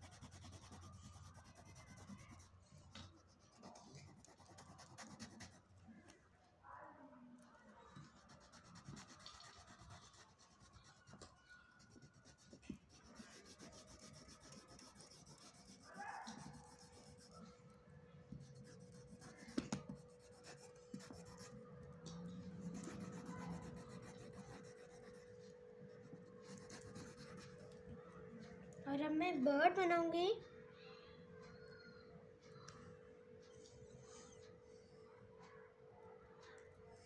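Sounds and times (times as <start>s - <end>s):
crayon scratching on paper: 0.0s - 5.6s, 7.9s - 17.6s, 18.4s - 21.6s, 22.5s - 27.8s.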